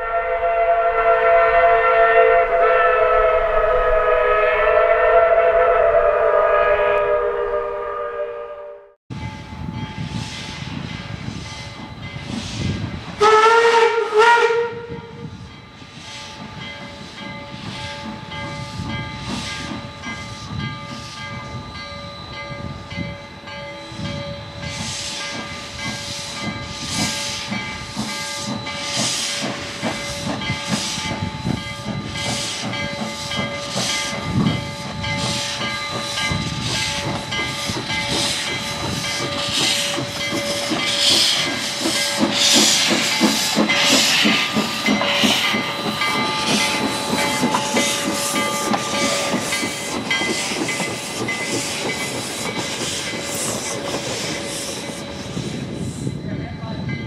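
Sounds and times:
steam locomotive whistle: 0.0s - 9.0s, 12.5s - 15.4s, 17.7s - 50.6s
steam locomotive exhaust chuffs: 0.0s - 57.0s
steady steam hiss: 9.9s - 13.4s, 15.2s - 56.8s.

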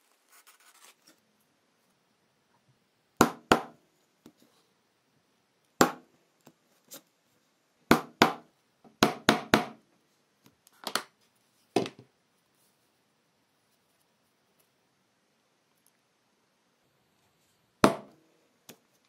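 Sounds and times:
mallet striking leather chisel: 7.9s - 8.4s, 17.8s - 18.1s.

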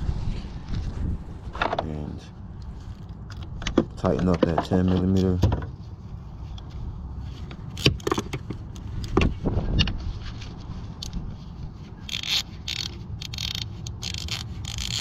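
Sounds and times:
metal clicks and scrapes: 6.5s - 10.0s, 12.0s - 15.0s
ratchet wrench clicking: 12.1s - 15.0s.

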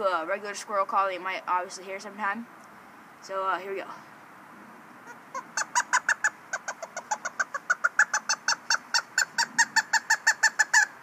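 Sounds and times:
squirrel call chirping barks: 5.0s - 11.0s.

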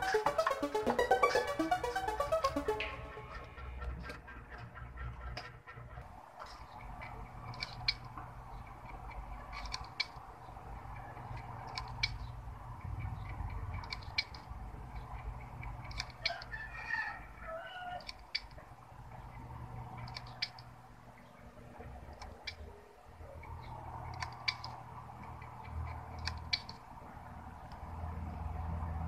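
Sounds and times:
computer humming: 0.0s - 3.6s.

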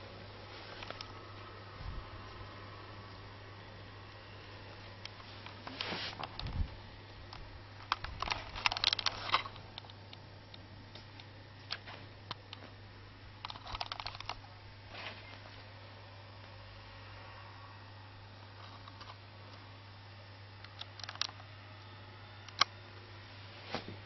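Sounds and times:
steady low hum: 0.0s - 24.0s
handling clicks and rustles: 7.8s - 10.0s, 13.4s - 15.4s.

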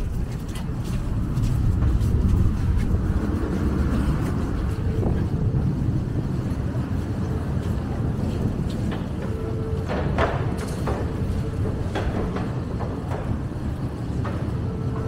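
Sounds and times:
busy station hall rumble: 0.0s - 15.0s.

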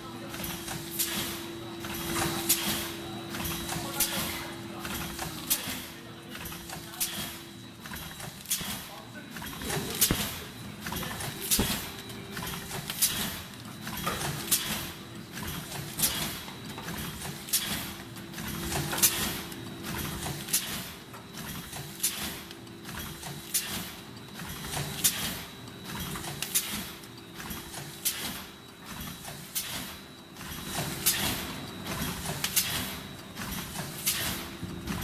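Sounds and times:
machine humming: 0.0s - 14.6s
packing machine clacking: 0.3s - 35.0s.

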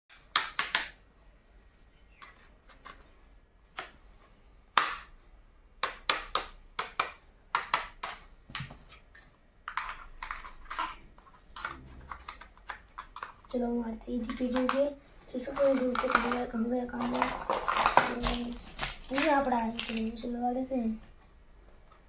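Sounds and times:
plastic toy tools tapping: 0.1s - 1.0s, 4.7s - 5.1s, 5.8s - 8.7s, 9.6s - 11.0s, 11.6s - 13.6s, 14.2s - 20.3s.

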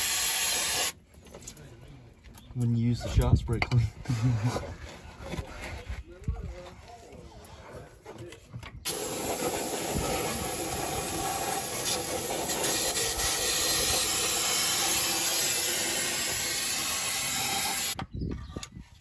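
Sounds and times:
aerosol spray hissing: 8.9s - 18.0s.

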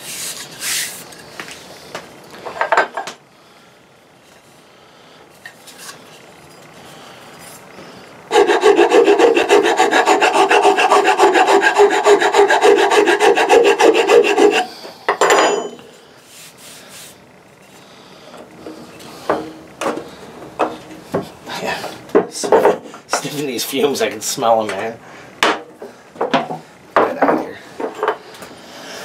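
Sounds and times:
file rasping on wood: 8.3s - 14.8s.

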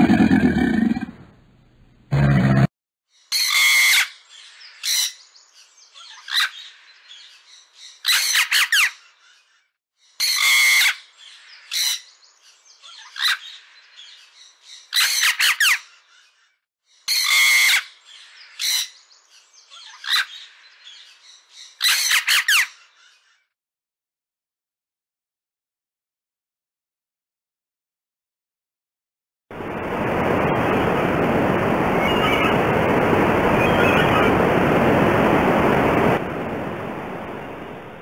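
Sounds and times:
parrot squawking: 3.3s - 4.2s, 6.1s - 6.7s, 8.0s - 9.0s, 10.2s - 11.1s, 17.1s - 18.0s, 21.8s - 22.8s, 33.6s - 34.4s.

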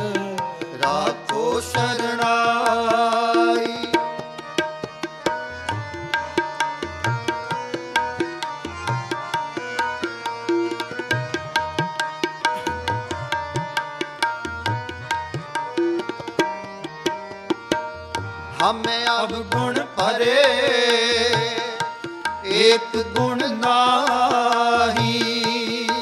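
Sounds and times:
harmonium melody: 0.0s - 26.0s
tabla playing a quick beat: 3.4s - 20.1s.

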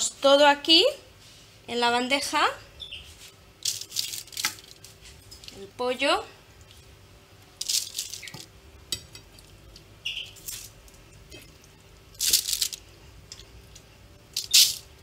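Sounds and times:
foil crinkling: 3.6s - 5.6s, 7.6s - 8.5s, 12.1s - 12.8s.

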